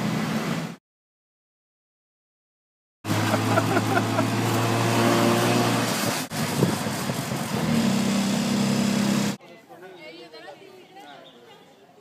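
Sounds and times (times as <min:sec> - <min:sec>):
auto rickshaw engine running: 0:03.1 - 0:09.4.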